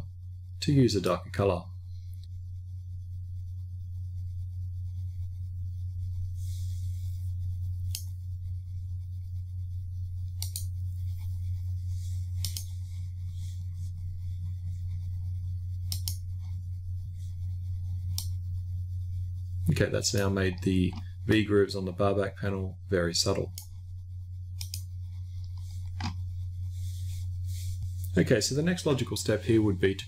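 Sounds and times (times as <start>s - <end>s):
low electrical hum: 0.0s - 30.0s
computer mouse clicking: 7.9s - 8.2s, 10.3s - 10.8s, 12.4s - 12.8s, 15.8s - 16.3s, 18.1s - 18.4s, 23.3s - 23.8s, 24.6s - 26.2s.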